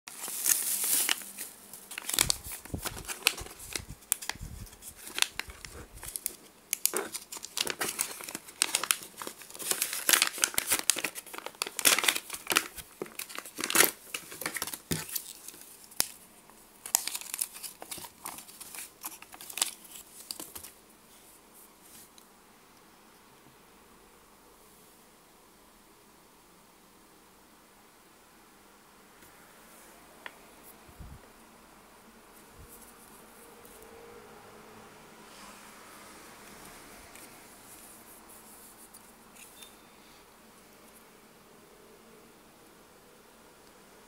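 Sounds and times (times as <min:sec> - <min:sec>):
plastic packaging crinkling: 0:00.1 - 0:16.2, 0:16.8 - 0:20.8.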